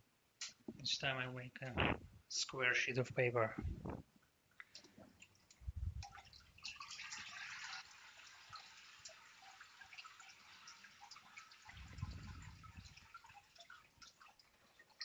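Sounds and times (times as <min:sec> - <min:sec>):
water trickling and dripping: 0:04.6 - 0:15.0.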